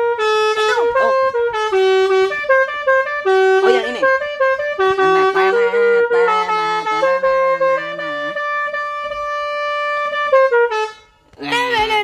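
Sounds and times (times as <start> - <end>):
multi-trumpet air horn playing a tune: 0.0 - 11.2.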